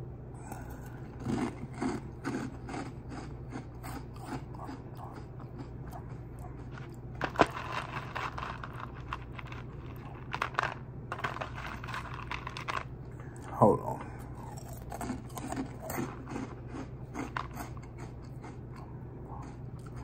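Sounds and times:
dry cereal being crunched: 6.6 - 12.9.

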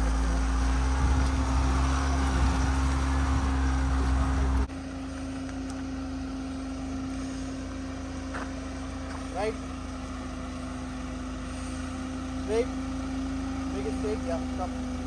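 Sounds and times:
engine hum: 0.0 - 15.0
wind rumble on microphone: 0.8 - 4.6.

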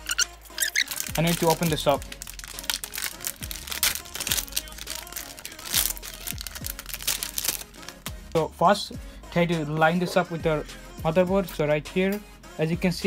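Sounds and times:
packaging crackling and rustling: 0.0 - 8.1
background music: 0.0 - 13.0.

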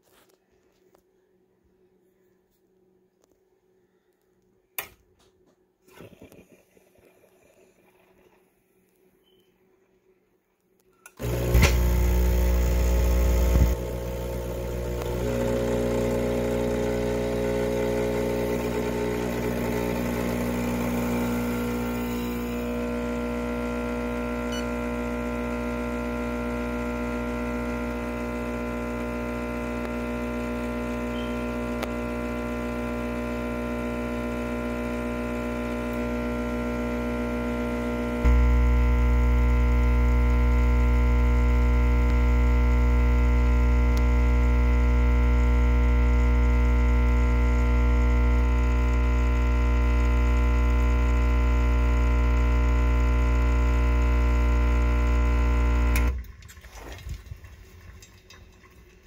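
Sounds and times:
espresso pump buzzing hum: 11.1 - 56.2.

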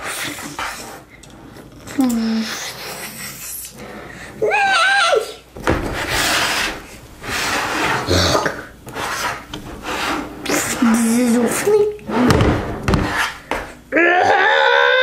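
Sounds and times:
wavering vocal cry: 13.9 - 15.0.

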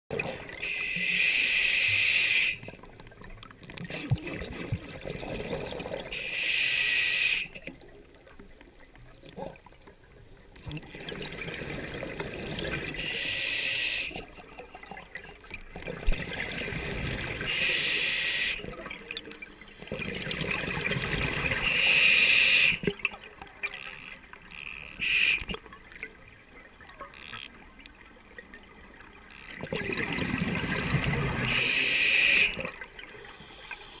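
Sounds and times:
regulator hiss on inhale: 0.7 - 2.6, 6.2 - 7.6, 13.0 - 14.2, 17.5 - 18.6, 21.6 - 22.8, 25.0 - 25.5, 31.5 - 32.6, 33.3 - 34.0.

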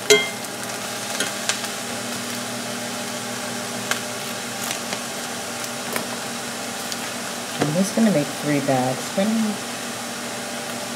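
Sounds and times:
metal spoon clinking on pan: 0.0 - 0.4
spinach sizzling in skillet: 0.0 - 10.9.

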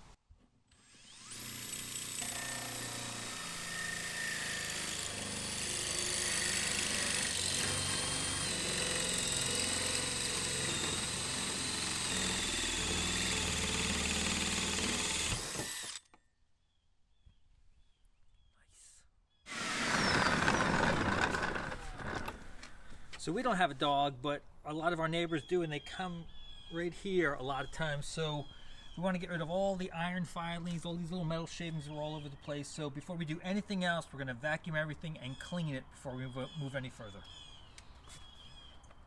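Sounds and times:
drill with hole saw cutting metal: 0.7 - 16.1, 19.5 - 22.4.

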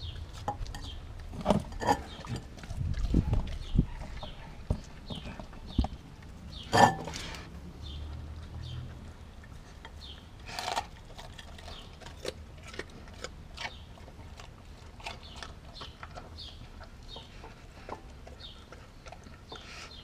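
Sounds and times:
dog chewing and crunching food: 0.0 - 20.0
clicks against glass bowl: 6.7 - 7.2.

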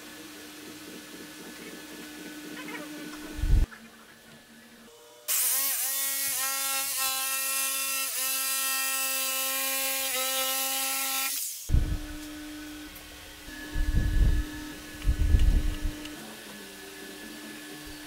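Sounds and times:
jigsaw cutting wood: 5.3 - 12.8.

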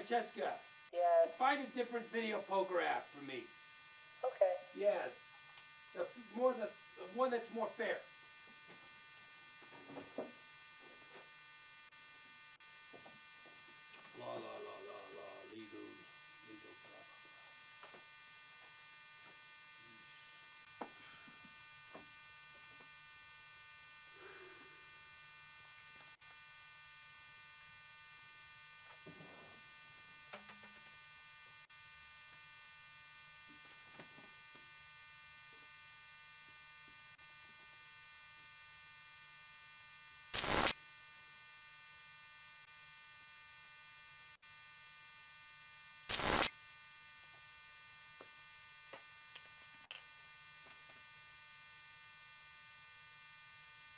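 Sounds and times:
electrical hum and buzz: 40.4 - 40.7, 46.1 - 46.5
very loud short bursts: 40.4 - 40.7, 46.1 - 46.5.

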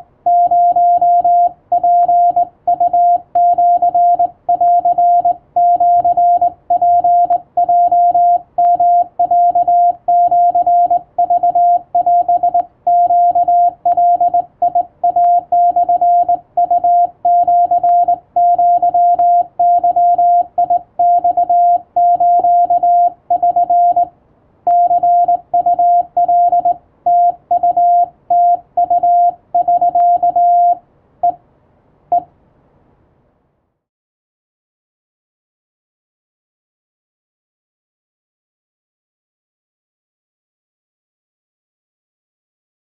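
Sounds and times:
morse code beeps: 0.0 - 24.1, 24.7 - 31.4.

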